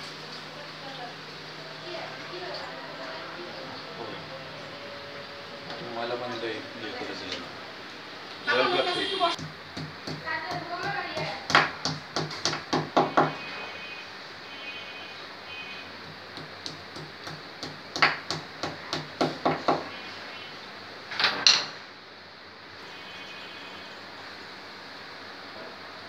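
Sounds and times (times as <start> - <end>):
hammer tapping on wall: 9.4 - 13.4, 16.4 - 19.9.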